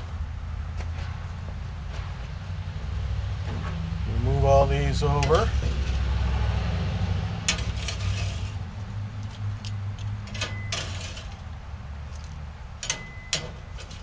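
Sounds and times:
metal spatula scraping grill grate: 3.5s - 6.2s, 6.9s - 11.6s, 12.8s - 14.0s.

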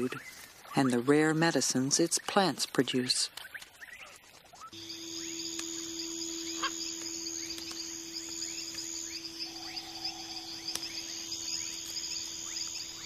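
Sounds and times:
insects chorus: 3.8s - 13.0s
low hum: 4.8s - 13.0s.

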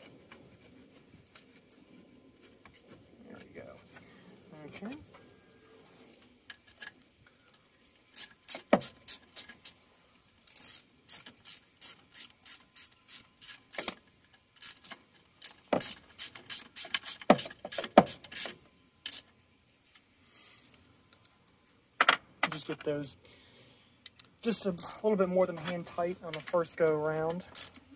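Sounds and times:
ratchet wrench clicking: 8.2s - 9.8s, 10.4s - 14.0s, 14.6s - 19.3s, 24.5s - 25.0s, 27.5s - 27.8s.

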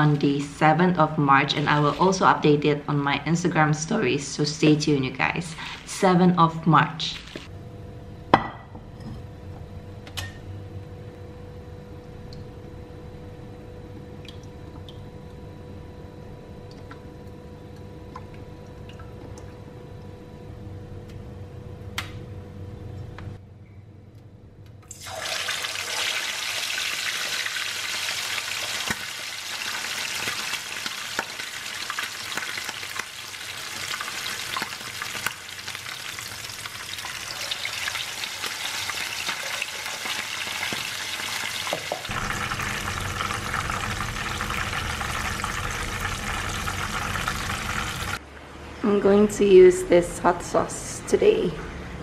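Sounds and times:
chicken sizzling in hot oil: 24.9s - 48.2s.

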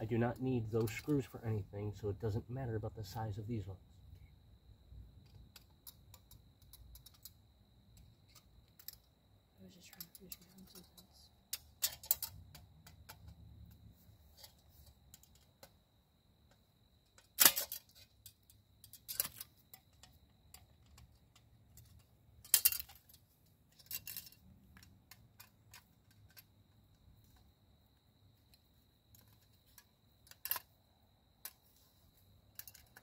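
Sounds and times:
metal stove parts clicking and clinking: 0.1s - 1.2s, 5.2s - 9.1s, 9.8s - 13.4s, 14.4s - 15.8s, 17.0s - 27.4s, 28.5s - 30.7s, 32.5s - 33.0s
metal clanks: 17.2s - 24.4s.

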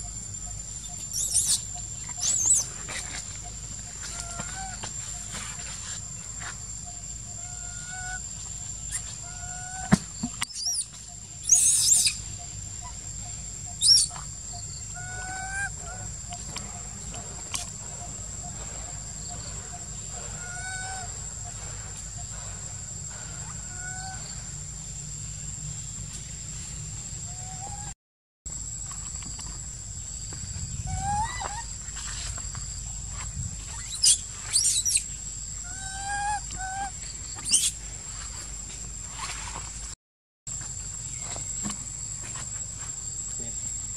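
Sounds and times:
macaques squealing: 1.0s - 3.2s, 8.9s - 12.2s, 13.8s - 16.6s, 18.8s - 21.4s, 30.9s - 31.8s, 33.7s - 35.1s, 35.7s - 37.8s
squeaky animal calls: 10.5s - 12.2s, 13.7s - 16.2s, 35.7s - 37.8s
macaques cooing: 14.9s - 24.2s, 35.7s - 37.0s.

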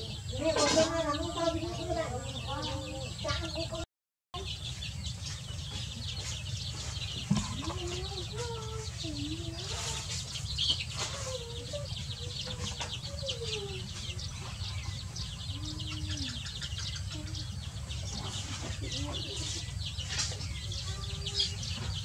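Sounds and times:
chicks cheeping: 0.0s - 22.0s
hen clucking softly: 11.0s - 21.0s.

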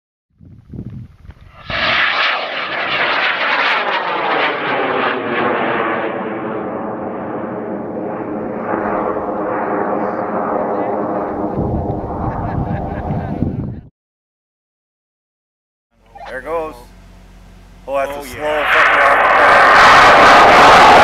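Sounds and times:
rocket motor roaring: 17.8s - 21.0s.

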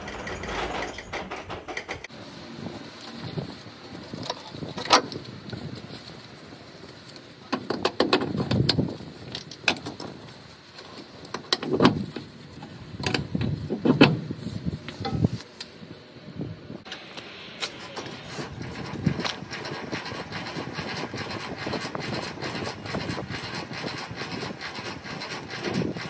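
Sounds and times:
air hoses being connected: 16.8s - 24.5s.

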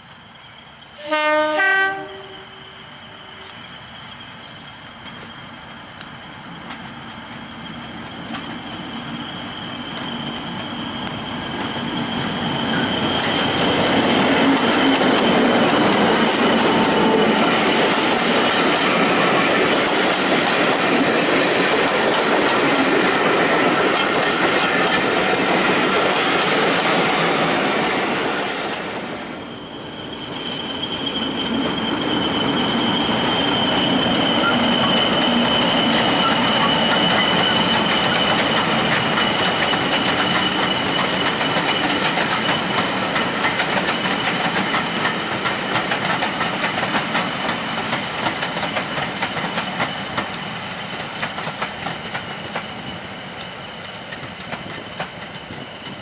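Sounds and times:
wheels clattering over rail joints: 30.5s - 52.9s.

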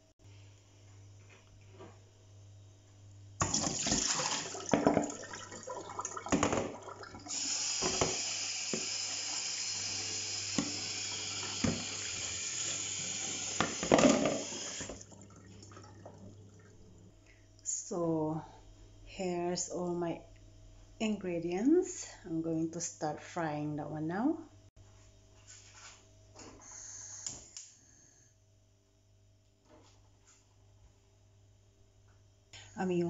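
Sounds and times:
water splashing in colander: 3.4s - 16.7s
tap running into metal sink: 6.3s - 9.0s, 10.5s - 15.0s.

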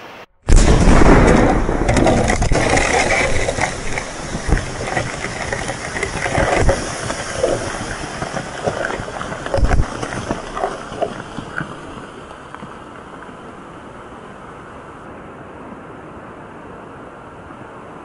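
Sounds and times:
blast rumble: 0.5s - 10.6s
mud and debris thumping: 0.5s - 12.8s
water rushing: 0.5s - 16.8s.

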